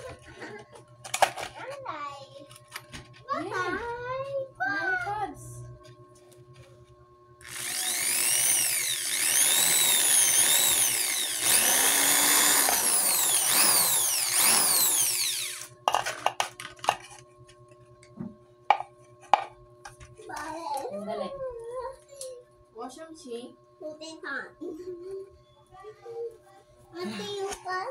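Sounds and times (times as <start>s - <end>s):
electric drill drilling into plastic: 7.4s - 15.8s.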